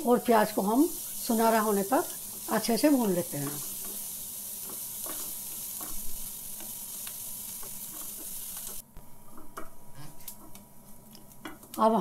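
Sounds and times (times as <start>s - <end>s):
onions sizzling in butter: 0.0s - 12.0s
wooden spatula scraping a pan: 3.3s - 11.7s.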